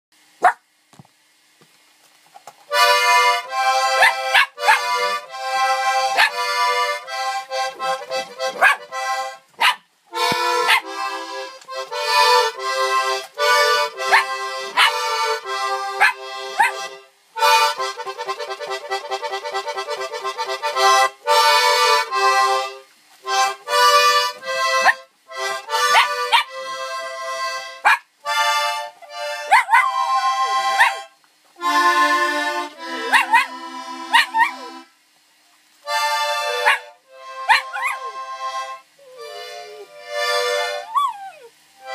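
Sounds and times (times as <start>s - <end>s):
accordion playing chords: 2.7s - 9.5s, 10.1s - 35.2s, 35.8s - 40.9s
puppy howling: 6.1s - 6.4s, 14.1s - 15.0s, 16.0s - 16.8s, 29.4s - 31.0s, 32.9s - 33.5s, 34.1s - 34.8s, 36.5s - 36.8s, 37.4s - 38.2s, 39.0s - 39.9s, 40.7s - 41.6s.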